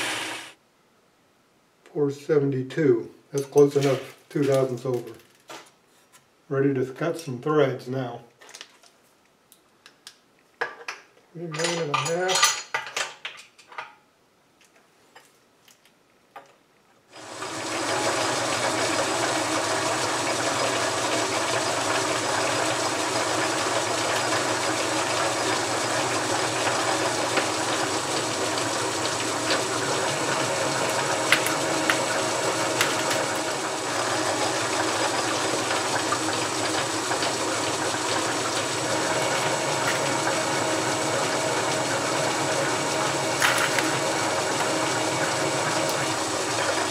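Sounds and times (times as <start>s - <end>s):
metal lathe motor humming: 0.0s - 0.6s, 17.2s - 46.9s.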